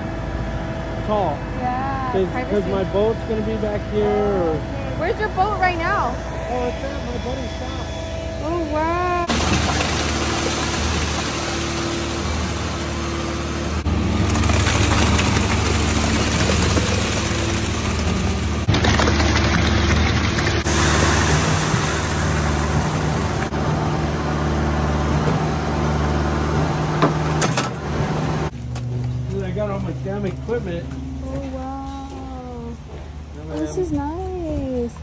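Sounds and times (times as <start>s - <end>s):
diesel engine rumble: 0.0s - 35.0s
mixer drum rushing noise: 9.3s - 28.5s.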